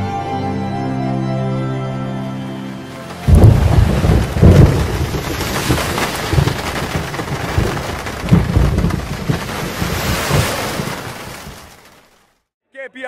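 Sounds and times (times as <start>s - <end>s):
steady rain: 2.6s - 12.4s
rolling thunder: 3.2s - 11.6s.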